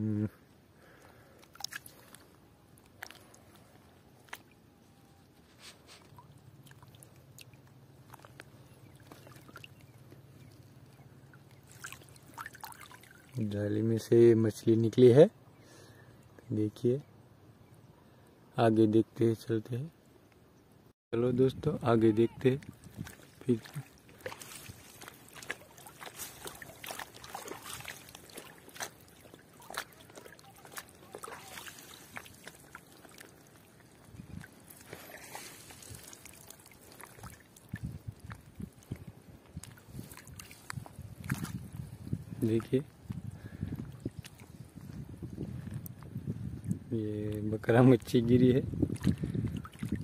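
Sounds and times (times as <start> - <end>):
small water splashes and drips: 1.0 - 4.6, 6.0 - 13.5, 22.4 - 44.9, 48.8 - 50.0.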